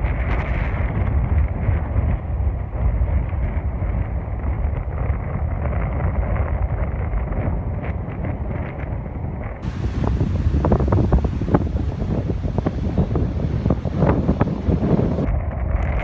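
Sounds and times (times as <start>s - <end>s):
wind buffeting microphone: 0.0s - 16.0s
sea waves breaking on rocks: 9.6s - 15.3s.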